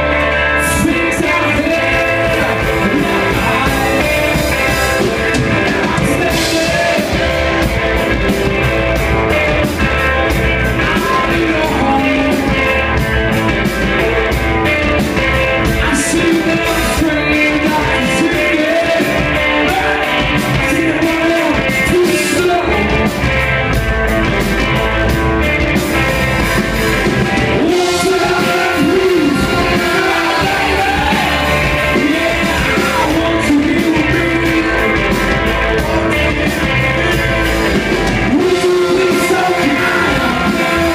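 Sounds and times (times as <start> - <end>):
singer singing: 0.0 - 23.7, 27.0 - 40.9
live rock band playing: 0.0 - 40.9.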